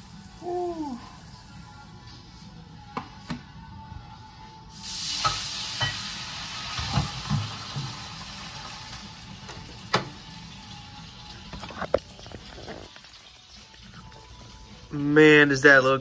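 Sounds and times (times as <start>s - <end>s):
frying pan sizzling: 4.7s - 13.8s.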